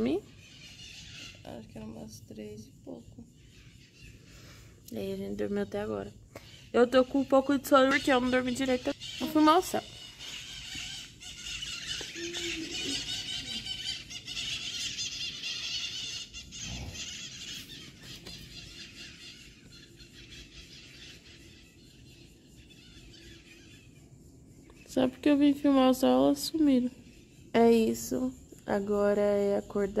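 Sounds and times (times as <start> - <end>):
flock of birds squawking: 0.0 - 2.5, 6.4 - 24.0.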